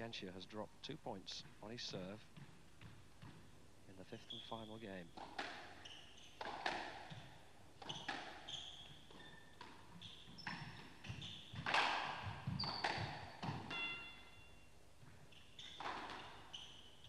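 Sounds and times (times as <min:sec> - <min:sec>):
shoes squeaking on court floor: 0:01.2 - 0:17.0
squash ball hits: 0:06.4 - 0:08.4, 0:10.4 - 0:14.1.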